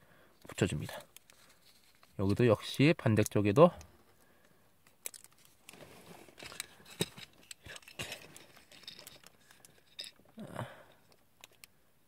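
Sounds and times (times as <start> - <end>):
soft rustling: 0.5 - 2.7, 5.2 - 10.2.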